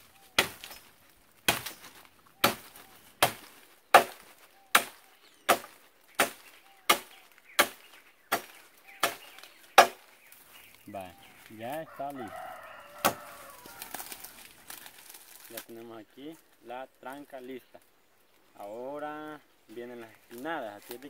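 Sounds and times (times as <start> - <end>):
machete chopping wood: 0.3 - 10.1, 13.0 - 13.3.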